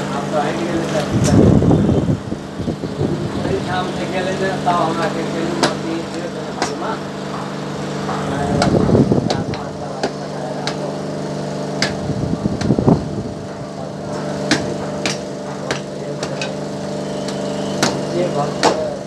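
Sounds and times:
steady motor hum: 0.0s - 19.0s
hammer knocking on coconut shell: 4.8s - 13.7s, 14.3s - 19.0s.

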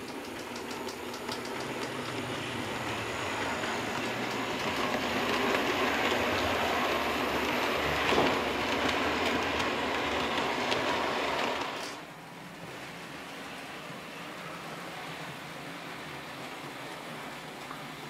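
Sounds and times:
model train wheels rattling on rails: 0.0s - 12.1s.

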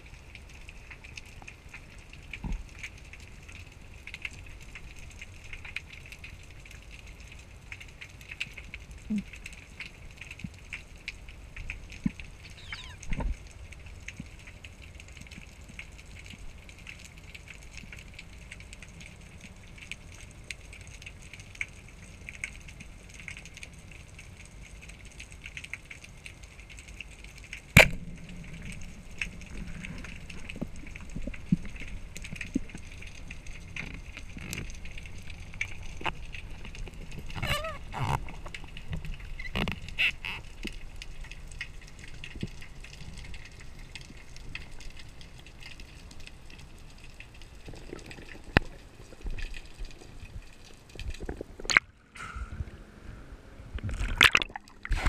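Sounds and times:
brief squeak: 12.4s - 13.1s.

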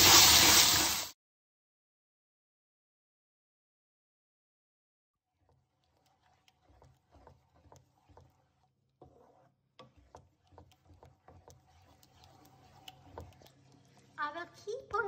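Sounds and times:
spatula scraping a pan: 5.3s - 15.0s.

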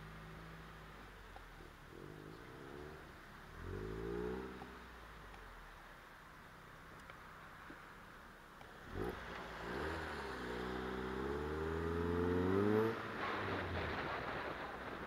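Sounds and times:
wind and road noise: 0.0s - 15.0s
car engine accelerating: 8.7s - 15.0s.

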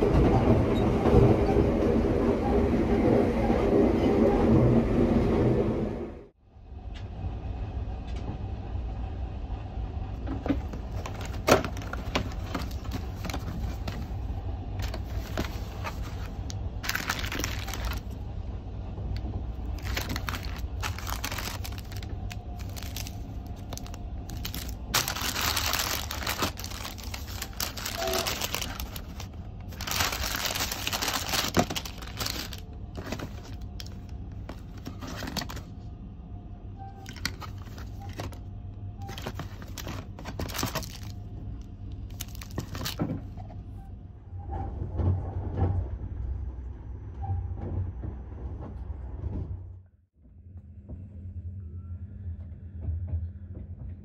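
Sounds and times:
train rumbling on rails: 0.0s - 54.0s
cardboard box and paper rustling: 10.3s - 14.1s, 14.8s - 18.2s, 19.7s - 35.7s, 37.0s - 38.4s, 39.1s - 41.1s, 42.1s - 43.1s.

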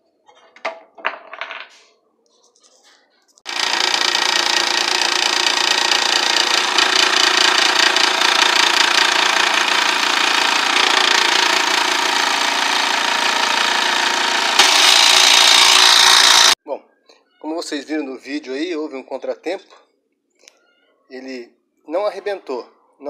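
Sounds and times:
scroll saw cutting wood: 3.5s - 16.6s.

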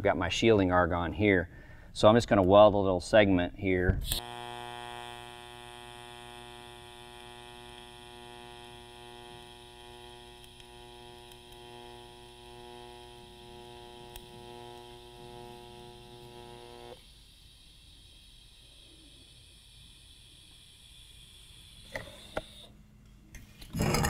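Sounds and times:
welding arc hum: 3.6s - 24.0s.

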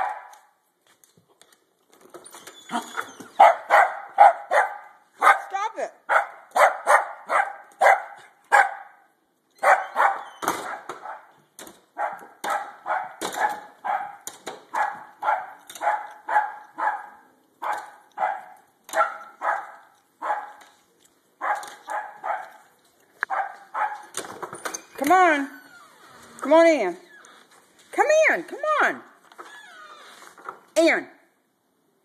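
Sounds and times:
dog barking: 0.0s - 0.4s, 3.4s - 11.3s, 12.0s - 20.6s, 21.4s - 22.7s, 23.3s - 24.1s.

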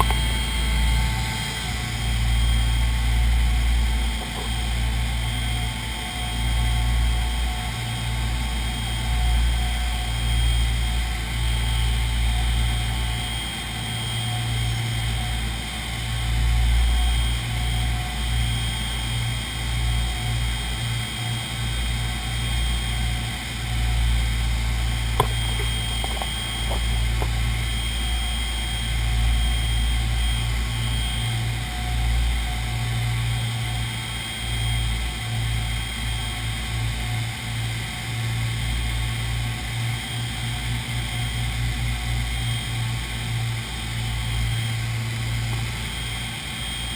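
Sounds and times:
aircraft engines droning: 0.0s - 46.9s
thin steady whine: 0.0s - 46.9s
sharp click: 25.2s - 27.4s.

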